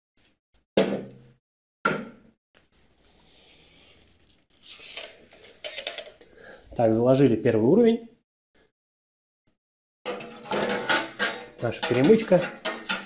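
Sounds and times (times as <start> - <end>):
jars scraping and rustling: 4.1 - 6.3, 10.1 - 13.0.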